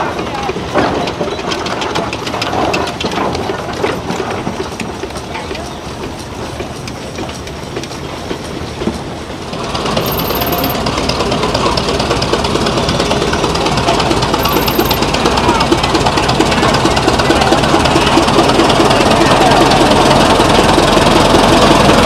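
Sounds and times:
steam engine chuffing and clattering: 0:00.0 - 0:22.0.

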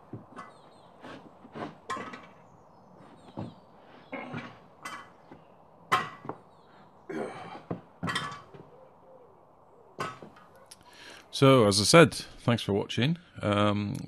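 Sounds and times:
heavy steel frame clanking on wood: 0:00.0 - 0:08.7, 0:10.0 - 0:10.6.

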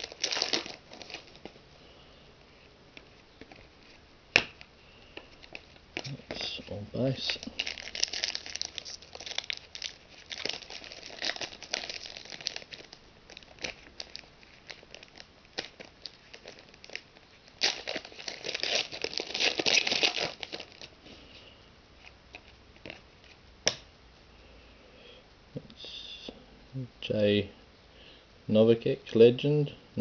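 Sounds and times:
foil wrapper crinkling and tearing: 0:00.0 - 0:01.6, 0:05.4 - 0:21.0.

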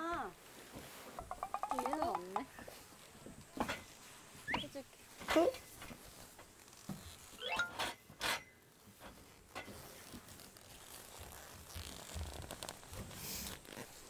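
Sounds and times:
tent fabric rustling: 0:00.0 - 0:01.2, 0:02.7 - 0:14.0
tent fabric rasping: 0:05.4 - 0:07.4, 0:08.2 - 0:14.0.

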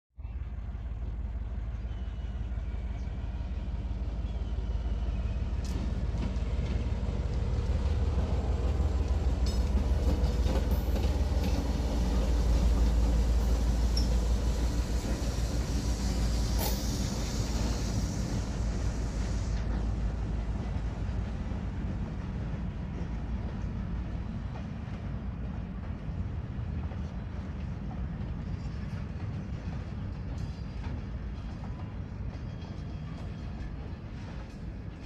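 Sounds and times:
locomotive engines rumbling: 0:00.2 - 0:35.0
wheels clicking on rail joints: 0:05.6 - 0:20.0.

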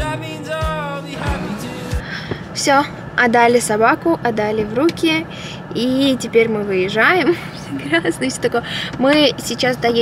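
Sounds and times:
background music with beat: 0:00.0 - 0:02.2.

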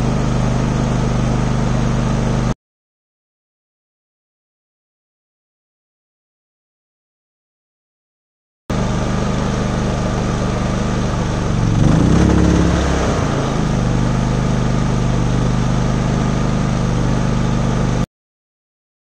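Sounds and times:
generator engine running: 0:00.0 - 0:02.6, 0:08.7 - 0:18.0.

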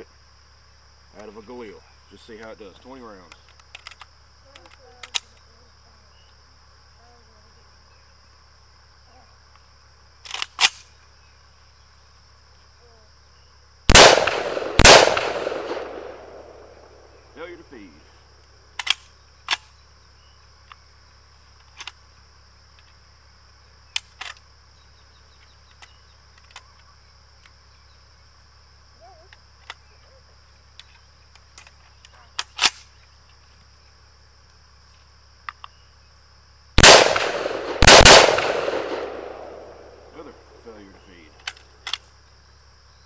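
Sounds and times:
rifle action metallic clicks: 0:10.3 - 0:10.8, 0:18.8 - 0:19.7
rifle shots with echo: 0:13.9 - 0:17.2, 0:36.8 - 0:40.4.

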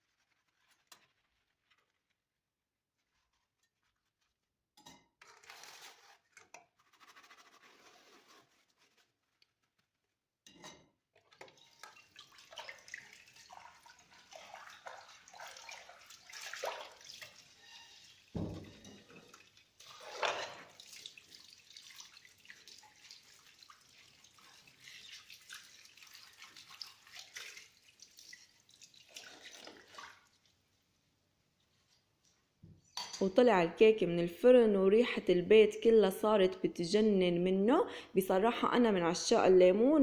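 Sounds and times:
tap water splashing on plates: 0:11.3 - 0:30.5.

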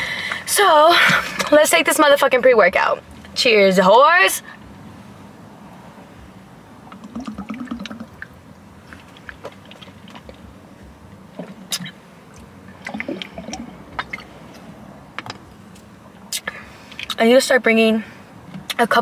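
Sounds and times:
person gulping a drink: 0:06.9 - 0:08.3, 0:12.8 - 0:14.2.

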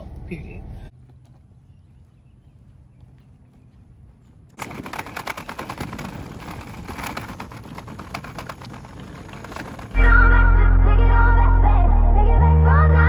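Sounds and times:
small wheels rattling over pavers: 0:04.5 - 0:10.4.

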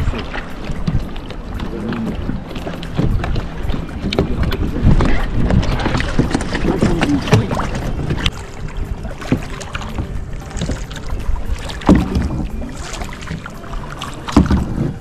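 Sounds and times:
paddle splashing water: 0:00.0 - 0:15.0
wind buffeting microphone: 0:00.0 - 0:15.0.

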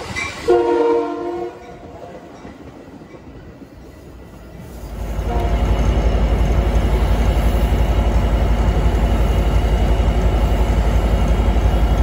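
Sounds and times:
diesel locomotive engine running: 0:00.0 - 0:12.0.

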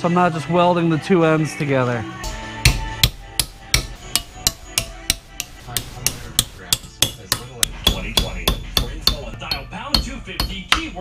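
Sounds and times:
hammer striking metal strip: 0:02.6 - 0:11.0.

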